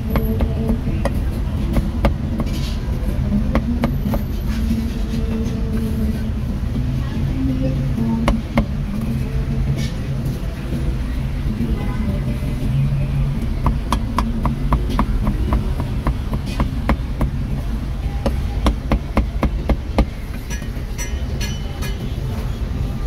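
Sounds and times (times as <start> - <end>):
cleaver chopping on wooden block: 13.6 - 17.4, 18.2 - 20.7.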